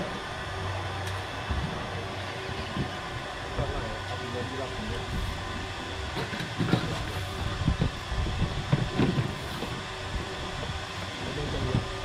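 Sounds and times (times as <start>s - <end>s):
boat engine humming: 0.0s - 12.0s
low thumps and gusts: 6.0s - 10.8s.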